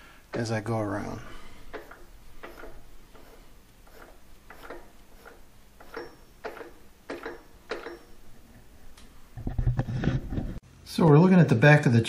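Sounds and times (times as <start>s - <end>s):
light rubbing: 0.4s - 10.6s
lathe spindle clicking: 1.6s - 8.2s.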